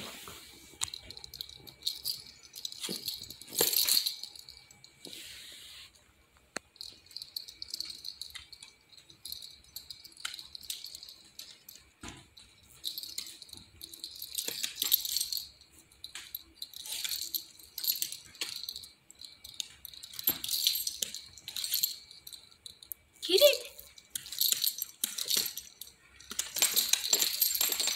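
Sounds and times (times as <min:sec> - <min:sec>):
dog collar tags jingling: 0:00.8 - 0:04.9, 0:06.8 - 0:27.9.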